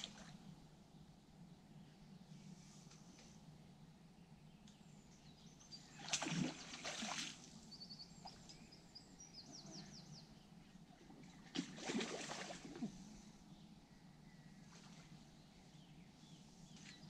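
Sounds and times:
fish splashing at water surface: 6.0s - 7.5s, 11.5s - 13.0s
bird chirping: 7.7s - 10.7s.

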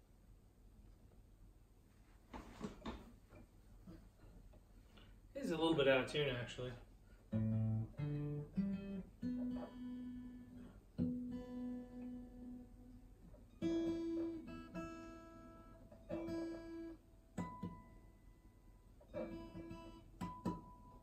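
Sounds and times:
acoustic guitar strings plucked: 7.3s - 18.3s, 19.0s - 21.0s.

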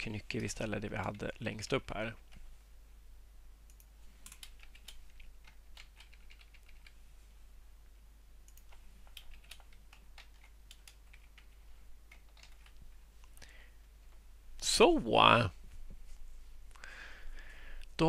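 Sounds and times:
keyboard typing: 3.7s - 7.0s, 8.5s - 12.9s.

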